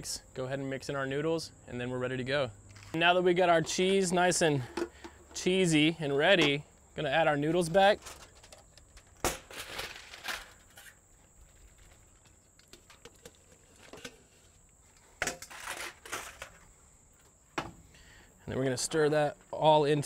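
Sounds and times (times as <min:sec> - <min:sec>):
noodles scraping and rustling: 0:07.5 - 0:16.7.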